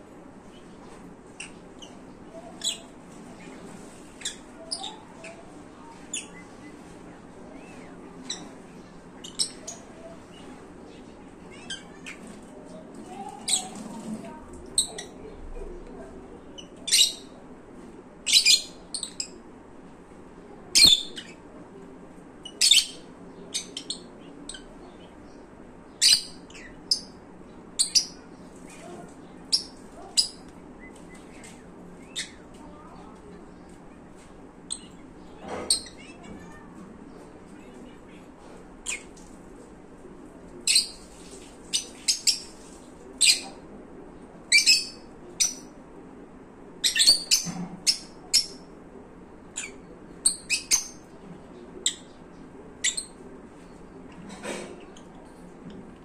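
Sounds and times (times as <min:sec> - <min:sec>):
lovebirds chirping: 0:00.4 - 0:15.2, 0:22.4 - 0:39.2, 0:44.4 - 0:45.7, 0:46.8 - 0:48.7, 0:49.5 - 0:54.2.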